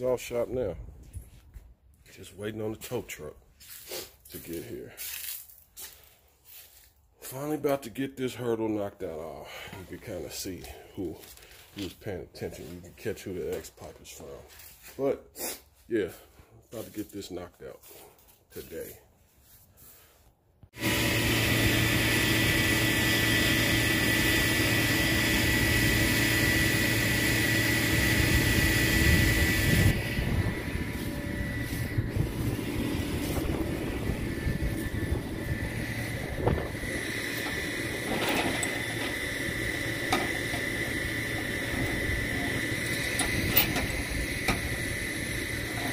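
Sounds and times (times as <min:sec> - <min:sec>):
high whine: 0:20.8 - 0:45.9
truck engine humming: 0:20.8 - 0:45.9
metal chains clanking: 0:38.1 - 0:39.1.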